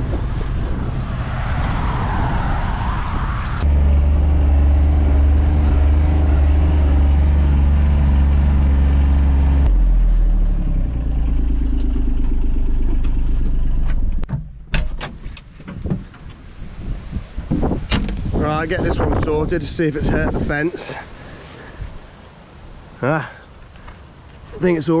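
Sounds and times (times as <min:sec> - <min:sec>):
diesel engine drone from inside cab: 0:03.6 - 0:14.3.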